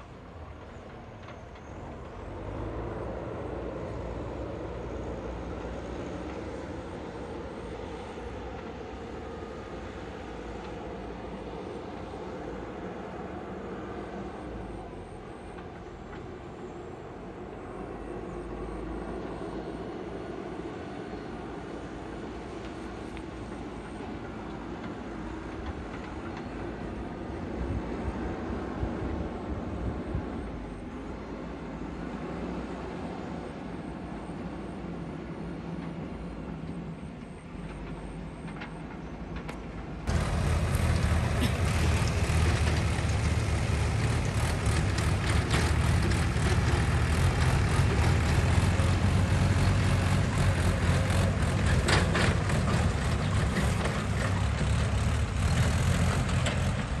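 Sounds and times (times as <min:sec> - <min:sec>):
distant diesel engine running: 0:40.0 - 0:57.0.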